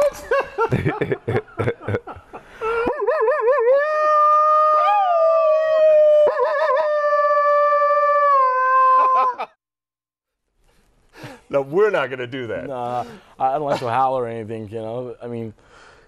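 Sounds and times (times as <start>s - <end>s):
men howling like wolves: 2.8s - 9.5s.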